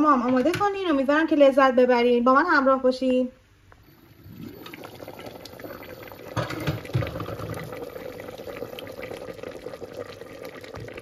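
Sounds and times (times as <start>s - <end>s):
stew bubbling in a pot: 3.8s - 11.0s.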